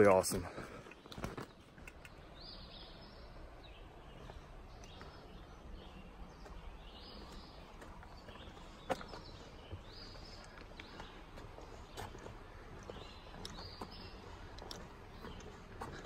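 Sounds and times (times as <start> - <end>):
songbird singing: 0.0 - 16.0
footsteps on wooden bridge: 3.4 - 16.0.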